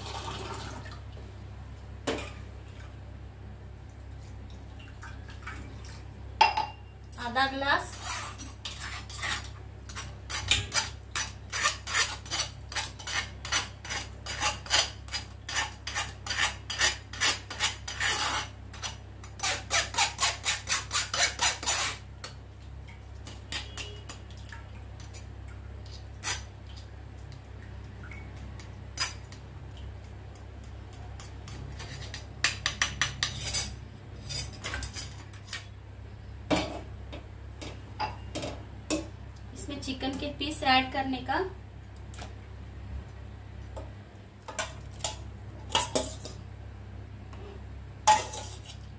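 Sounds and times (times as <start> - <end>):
metal spoon scraping a mesh strainer: 7.8 - 22.0, 31.5 - 35.7, 48.1 - 48.9.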